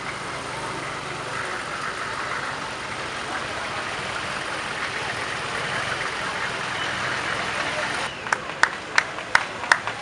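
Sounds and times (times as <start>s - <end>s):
vehicle engines idling: 0.0s - 10.0s.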